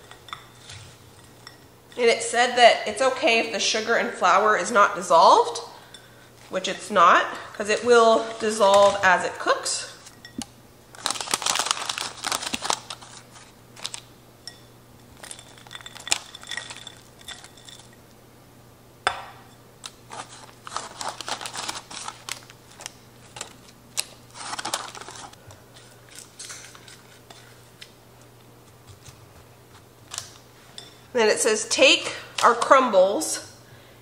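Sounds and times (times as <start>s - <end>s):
parchment paper crinkling: 10.9s - 14.1s, 20.1s - 27.9s.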